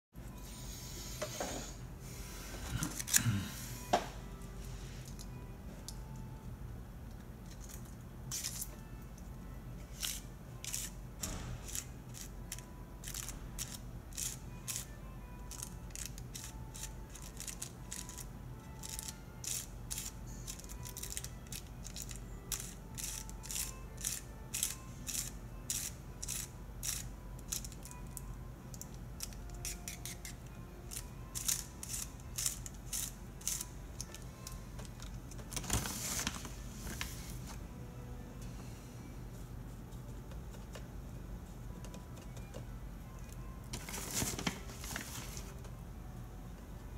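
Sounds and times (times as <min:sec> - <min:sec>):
paper tube crinkling and crackling: 0:35.5 - 0:37.6, 0:43.7 - 0:45.6
paper rustling scrape: 0:35.6 - 0:37.6, 0:43.8 - 0:45.5.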